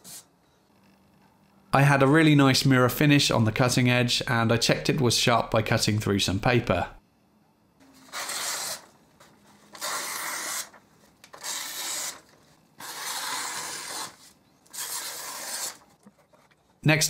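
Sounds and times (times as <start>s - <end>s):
plane blade slicing paper: 8.0s - 8.9s, 9.6s - 16.0s.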